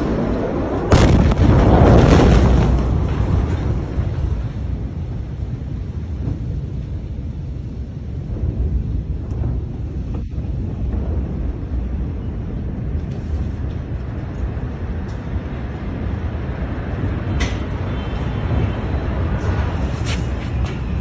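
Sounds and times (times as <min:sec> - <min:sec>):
loud explosion bang: 0:00.0 - 0:04.9
explosion rumble: 0:00.0 - 0:21.0
wind buffeting microphone: 0:00.0 - 0:21.0.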